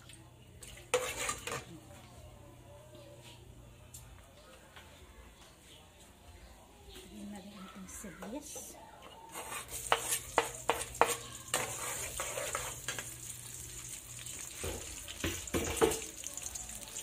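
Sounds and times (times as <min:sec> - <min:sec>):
metal spatula scraping a pot: 0:00.9 - 0:01.7, 0:09.0 - 0:13.2
onion sizzling in hot oil: 0:09.3 - 0:17.0.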